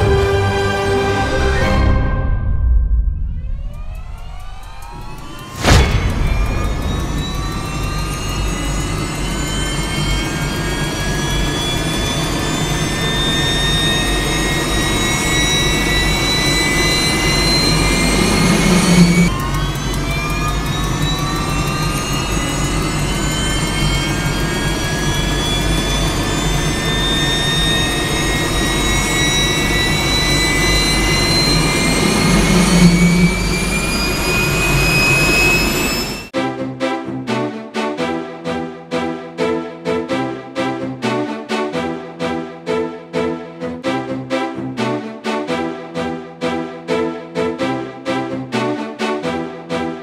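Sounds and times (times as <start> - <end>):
jet engine spooling up: 1.2 - 36.4.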